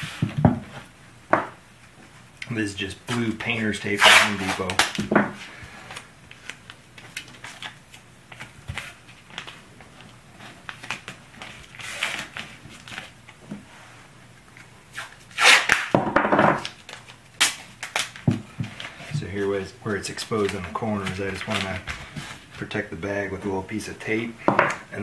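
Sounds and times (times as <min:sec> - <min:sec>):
tape ripped off roll: 0:04.0 - 0:05.0, 0:14.9 - 0:16.7.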